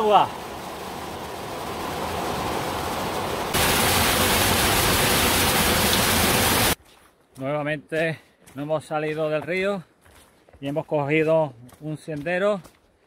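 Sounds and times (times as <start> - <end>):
water rushing down cascades: 0.0 - 6.8.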